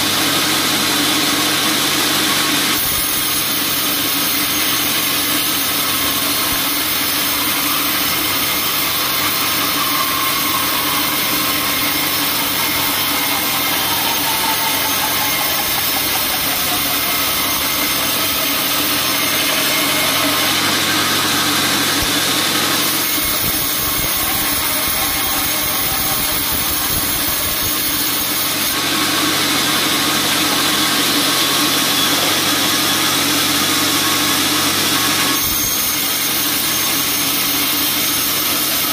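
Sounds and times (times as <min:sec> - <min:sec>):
band saw cutting wood: 0:00.0 - 0:38.9.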